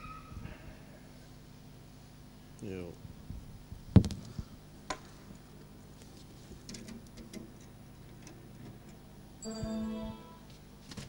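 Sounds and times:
steady pitched tone: 0:09.4 - 0:10.6.

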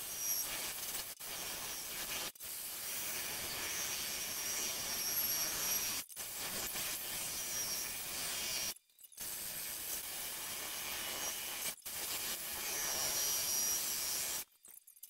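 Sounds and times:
drill grinding through glass: 0:00.0 - 0:14.5.

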